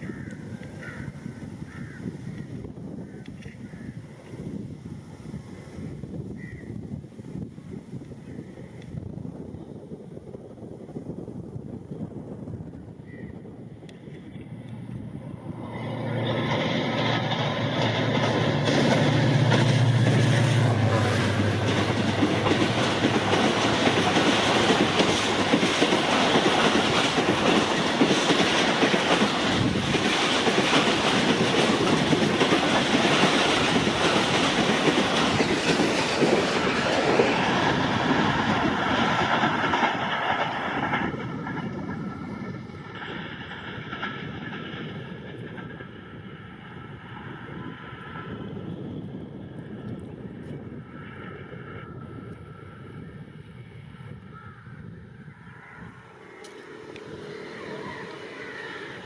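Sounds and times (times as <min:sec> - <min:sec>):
diesel locomotive engine: 0:00.0 - 0:59.0
train wheels clattering over rail joints: 0:14.8 - 0:46.4.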